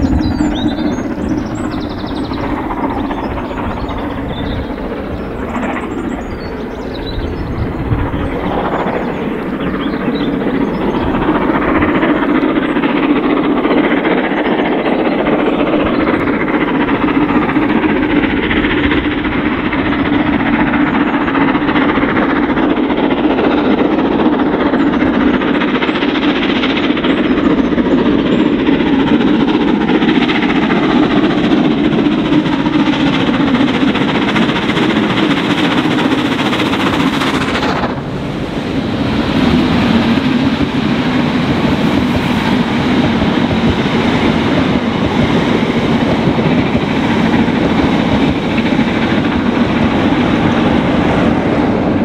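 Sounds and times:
steam locomotive exhaust beating: 0.0s - 52.0s
train wheels rumbling on rails: 0.0s - 52.0s.

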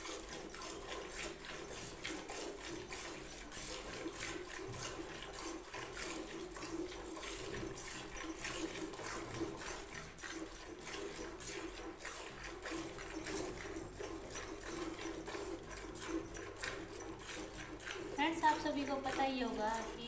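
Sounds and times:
milk squirting into bucket: 0.0s - 20.0s.

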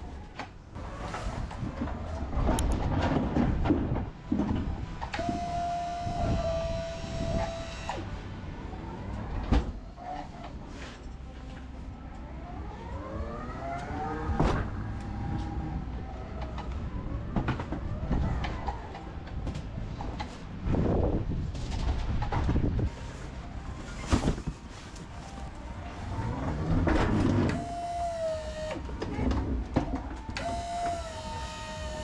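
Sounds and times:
electric pallet truck motor whine: 4.7s - 8.2s, 25.6s - 32.0s.

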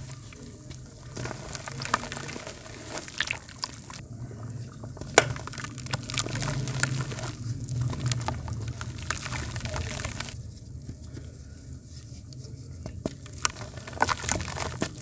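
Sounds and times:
crisp crackles: 0.0s - 4.0s, 4.9s - 15.0s
dry mud crumbling: 0.0s - 15.0s.

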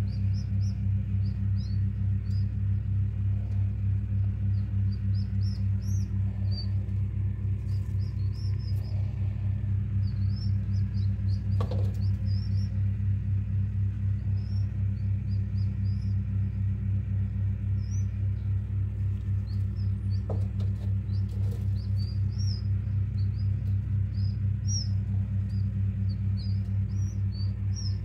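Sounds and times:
chicks peeping: 0.0s - 28.0s
low electrical hum: 0.0s - 28.0s.

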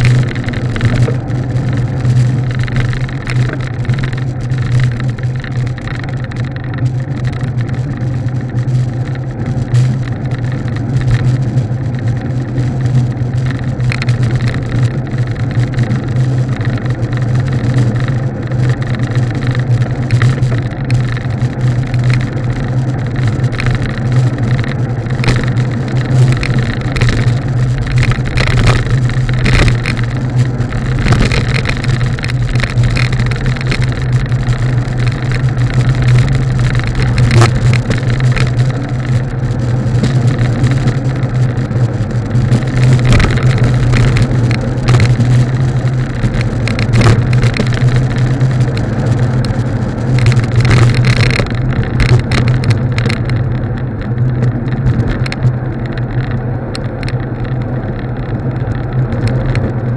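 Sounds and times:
wind buffeting microphone: 0.0s - 59.9s
knocks from road bumps: 23.2s - 39.2s.

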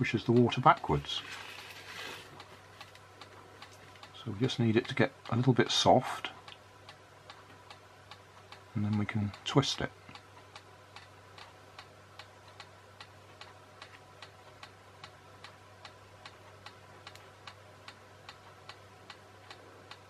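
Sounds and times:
clock ticking faintly: 0.0s - 1.2s, 2.3s - 20.0s
low electrical hum: 0.0s - 20.0s.

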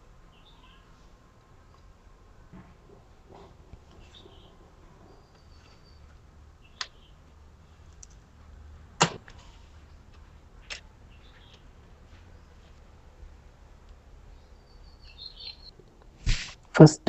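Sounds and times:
faint bird chirps: 0.3s - 1.0s, 4.0s - 7.2s, 11.1s - 11.7s, 14.3s - 15.8s.

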